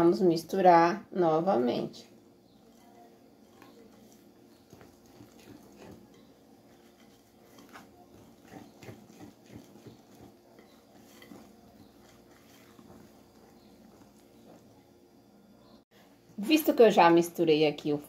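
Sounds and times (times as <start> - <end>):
faint steady hum: 0.0 - 18.0
whisk scraping glass bowl: 2.6 - 14.7.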